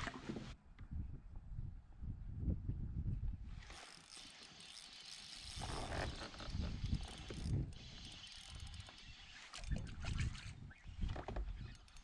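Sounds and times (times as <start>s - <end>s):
fishing reel ratcheting clicks: 3.7s - 9.7s, 11.6s - 12.0s.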